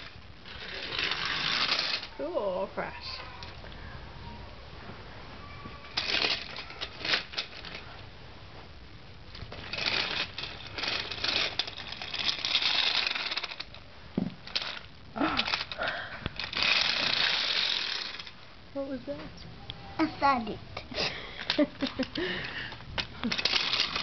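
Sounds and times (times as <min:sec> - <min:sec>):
toy train wheels clacking on track: 0:00.0 - 0:02.1, 0:06.0 - 0:07.8, 0:09.6 - 0:13.7, 0:14.5 - 0:14.8, 0:16.4 - 0:18.3, 0:21.5 - 0:24.0.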